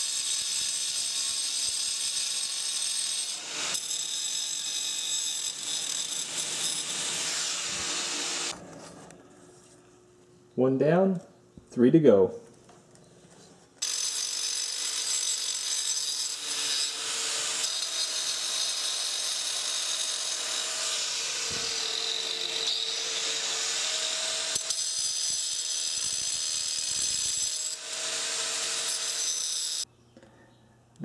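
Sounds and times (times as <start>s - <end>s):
angle grinder cutting stone: 0.0s - 8.5s, 13.8s - 29.9s.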